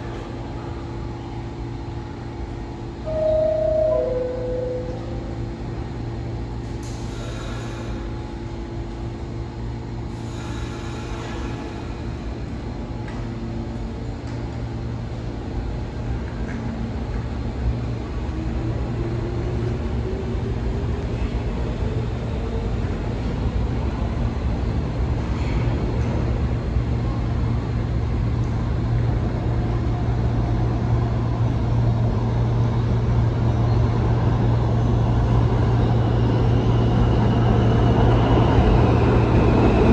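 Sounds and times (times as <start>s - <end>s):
subway train rumble: 0.0s - 39.9s
rising whine: 3.0s - 6.0s.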